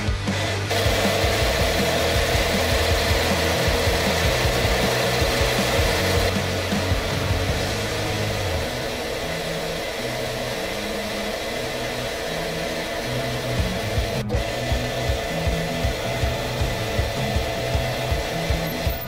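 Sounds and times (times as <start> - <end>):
background music with low bass: 0.0 - 19.0
metal lathe motor and gear whine: 0.7 - 19.0.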